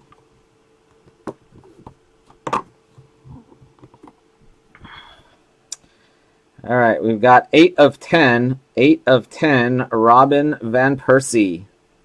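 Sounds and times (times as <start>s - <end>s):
plastic case clicks and knocks: 1.1s - 2.8s.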